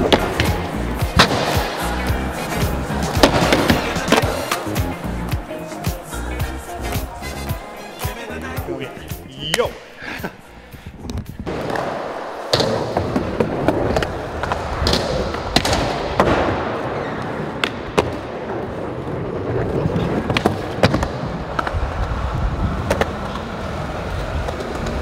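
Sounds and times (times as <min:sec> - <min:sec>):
skateboard wheels rolling on concrete: 0:00.0 - 0:25.0
skateboard clacking on ground: 0:11.1 - 0:25.0.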